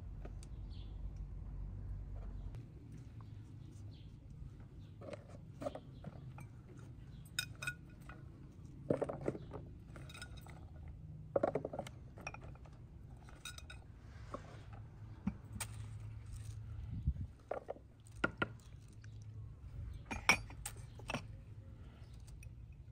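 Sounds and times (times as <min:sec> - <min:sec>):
ceramic bowls clinking: 0:06.1 - 0:10.8, 0:11.4 - 0:14.4, 0:20.0 - 0:21.4.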